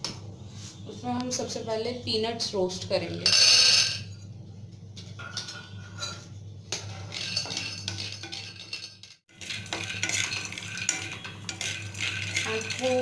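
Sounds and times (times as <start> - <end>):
peanuts rattling in a pan: 7.1 - 13.0.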